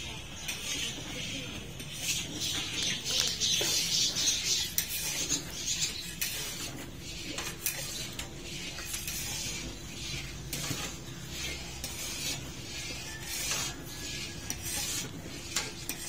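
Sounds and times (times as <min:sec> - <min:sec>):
milk boiling with steady hiss: 0:00.0 - 0:16.0
ladle scraping and clinking pan: 0:00.4 - 0:16.0.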